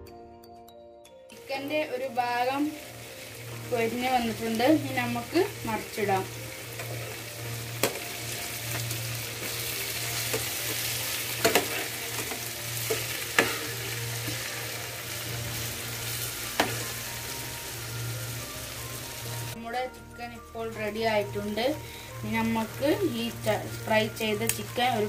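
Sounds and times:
chicken sizzling in oil: 0:01.3 - 0:25.0
metal spoon scraping a pan: 0:07.8 - 0:15.0.

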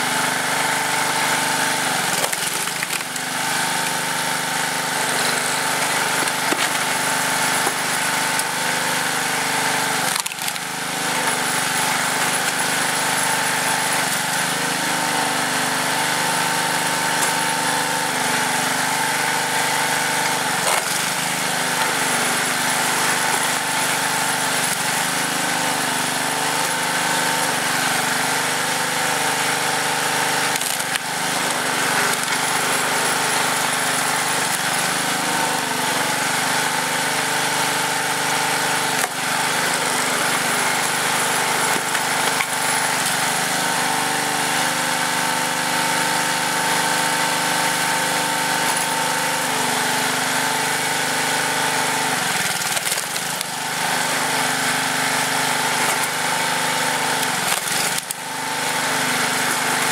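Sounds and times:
small engine running: 0:00.0 - 0:59.9
wood splitting cracks: 0:02.0 - 0:03.9, 0:05.3 - 0:08.6, 0:09.9 - 0:14.2, 0:20.2 - 0:25.7, 0:30.3 - 0:35.8, 0:38.2 - 0:43.3, 0:52.0 - 0:53.6, 0:54.9 - 0:58.5.

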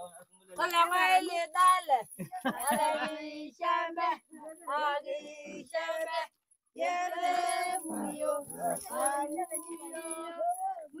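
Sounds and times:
high voices singing: 0:02.6 - 0:11.0.

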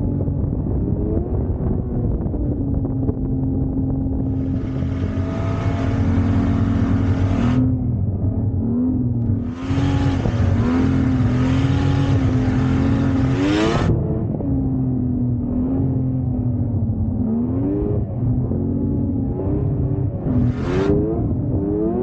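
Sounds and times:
snowmobile engine running: 0:00.2 - 0:14.3.

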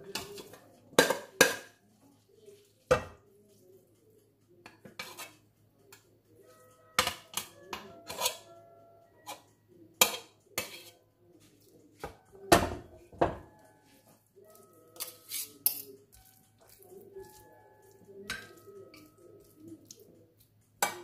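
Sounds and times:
metal utensils clinking on glass dish: 0:06.5 - 0:08.6, 0:13.4 - 0:20.0.

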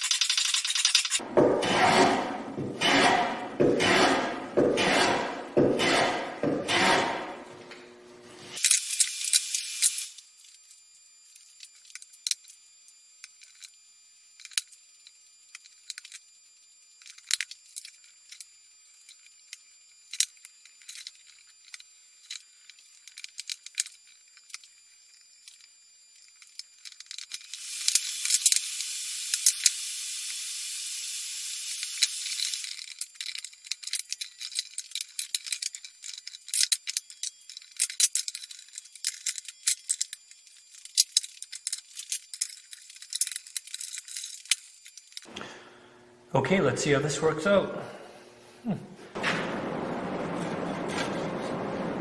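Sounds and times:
wooden parts clicking and tapping: 0:00.0 - 0:01.5, 0:20.1 - 0:28.6, 0:31.8 - 0:45.3.

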